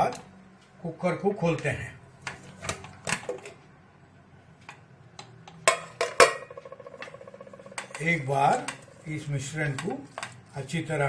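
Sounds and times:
steady low hum: 3.8s - 11.0s
buzzing tone: 6.2s - 9.6s.

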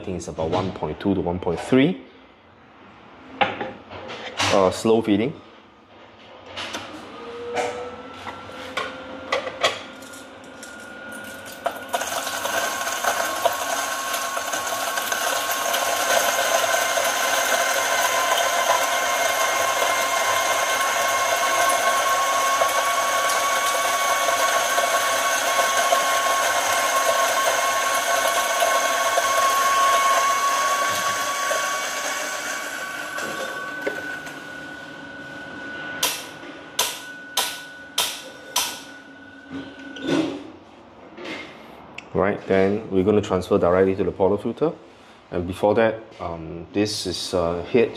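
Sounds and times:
grinder motor whine: 6.8s - 40.1s
coffee beans grinding: 10.0s - 34.4s.

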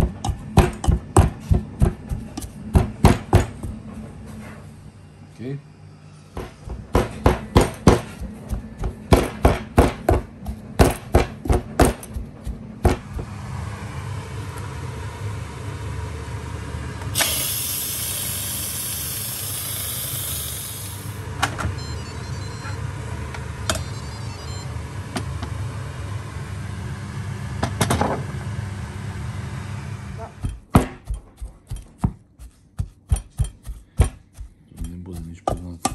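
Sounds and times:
steady low hum: 0.0s - 35.9s
steam valve hissing: 17.2s - 21.2s.

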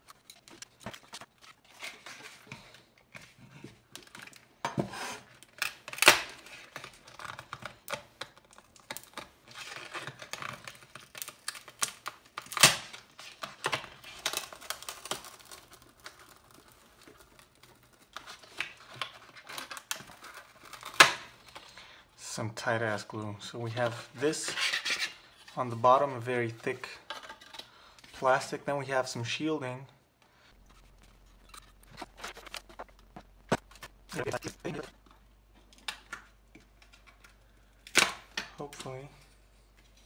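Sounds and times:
plastic crinkling and tearing: 0.0s - 2.8s, 5.2s - 21.7s, 30.5s - 39.0s.

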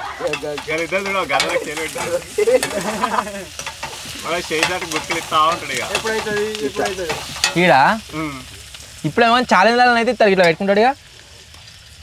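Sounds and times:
food sizzling in a pan: 0.0s - 12.0s
metal spatula scraping a pan: 0.2s - 7.8s.

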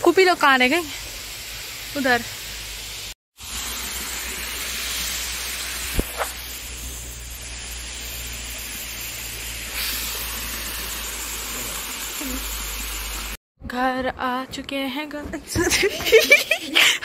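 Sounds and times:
waterfall rushing into pool: 3.4s - 6.4s.

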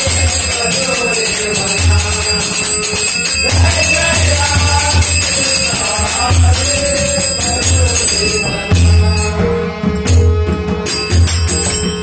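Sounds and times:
hand cymbals clashing: 0.0s - 9.4s, 10.0s - 12.0s
held tone: 0.0s - 9.6s.

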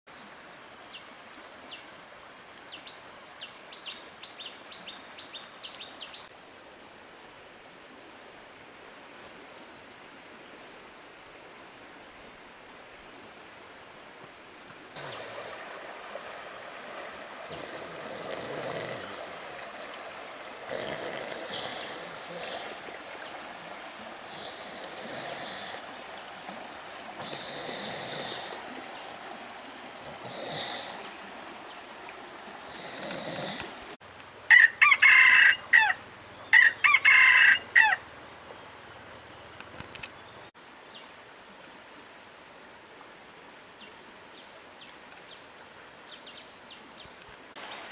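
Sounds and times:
rooster crowing: 34.5s - 38.0s.

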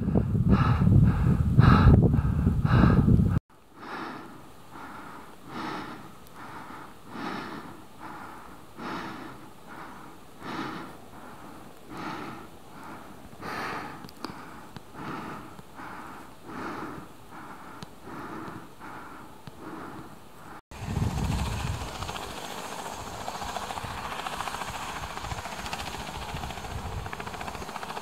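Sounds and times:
wind noise on microphone: 0.0s - 3.4s, 20.7s - 22.4s, 23.0s - 27.7s
heavy laboured breathing: 0.0s - 22.8s.

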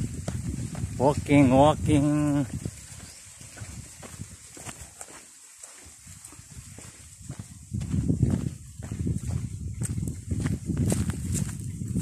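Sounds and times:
footsteps on stony dirt path: 0.0s - 12.0s.

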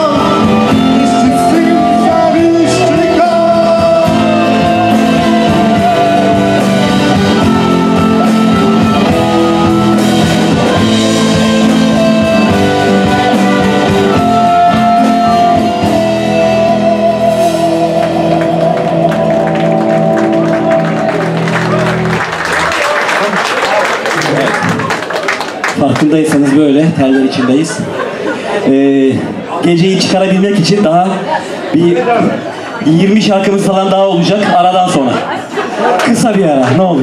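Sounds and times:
live rock band playing: 0.0s - 25.7s.

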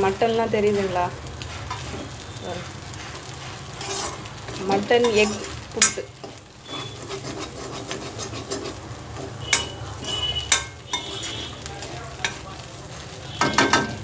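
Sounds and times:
metal spatula scraping a pan: 0.6s - 14.0s
spatula clanking against pan: 5.0s - 12.4s, 13.4s - 14.0s.

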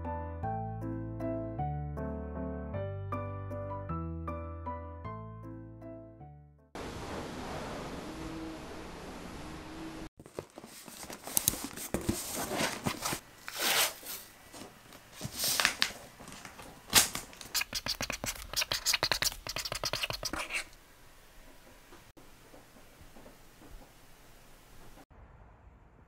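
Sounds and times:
packing tape ripping off roll: 10.4s - 14.3s, 15.1s - 19.3s
marker scratching on cardboard: 17.5s - 20.8s.

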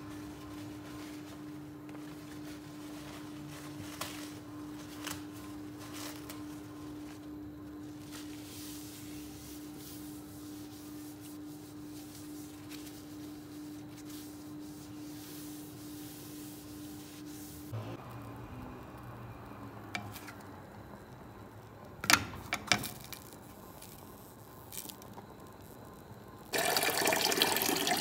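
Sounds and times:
tissue wiping a countertop: 0.0s - 17.8s.

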